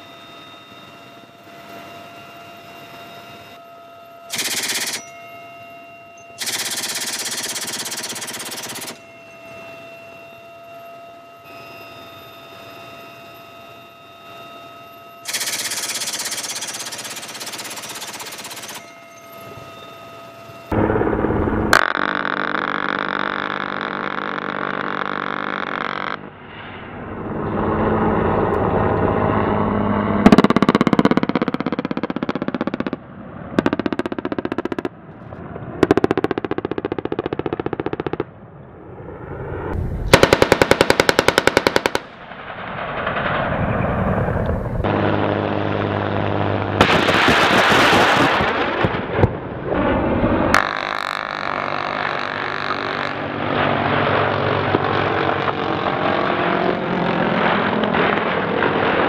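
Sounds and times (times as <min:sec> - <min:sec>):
machine gun automatic fire: 0:04.3 - 0:05.0, 0:06.4 - 0:09.0, 0:15.3 - 0:18.9, 0:35.8 - 0:38.3, 0:40.1 - 0:44.0, 0:46.8 - 0:49.2.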